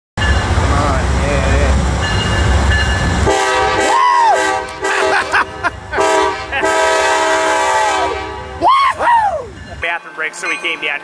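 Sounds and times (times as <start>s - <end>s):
low rumble of approaching train: 0.2s - 11.0s
train air horn blasts: 3.2s - 5.2s, 6.0s - 8.6s.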